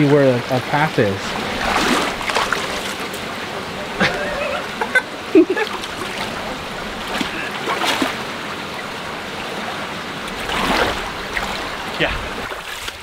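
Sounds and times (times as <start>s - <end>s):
creek water running: 0.0s - 13.0s
footsteps splashing in water: 1.4s - 3.1s, 7.0s - 8.2s, 12.3s - 13.0s.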